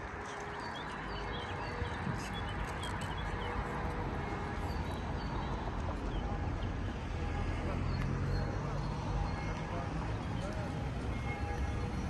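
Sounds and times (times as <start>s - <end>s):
traffic: 0.0s - 12.0s.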